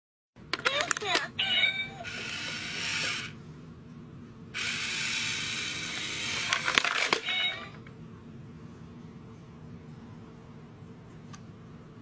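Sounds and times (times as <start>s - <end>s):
toy motor whirring: 0.7s - 3.4s, 4.6s - 7.8s.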